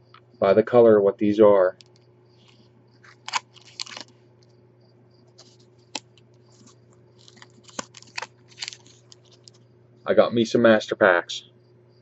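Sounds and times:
steady low hum: 0:00.0 - 0:12.0
foil packs crinkling: 0:02.4 - 0:04.2, 0:05.3 - 0:09.6.

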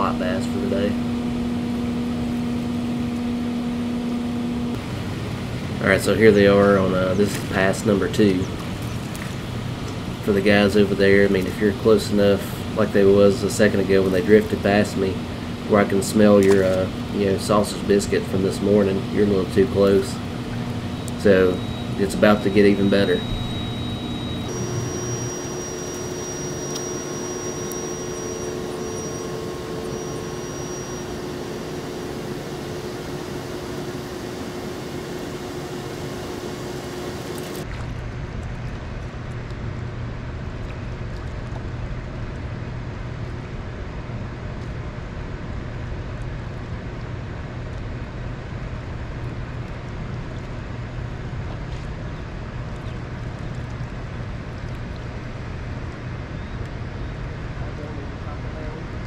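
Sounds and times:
boat motor droning: 0:00.0 - 0:39.6.

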